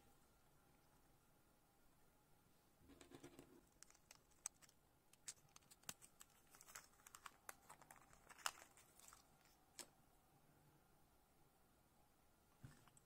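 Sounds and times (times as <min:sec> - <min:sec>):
small plastic parts clicking: 0:03.3 - 0:10.0
plastic bag crinkling: 0:03.7 - 0:09.6.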